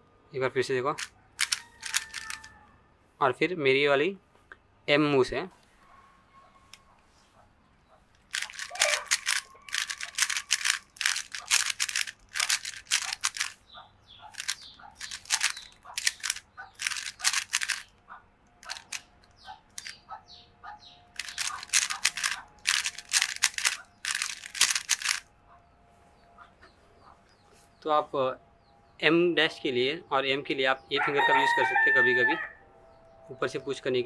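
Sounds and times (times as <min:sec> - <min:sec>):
puzzle cube plastic clicking: 0:00.9 - 0:02.5, 0:08.2 - 0:13.6, 0:14.3 - 0:17.9, 0:18.6 - 0:20.0, 0:21.2 - 0:25.2.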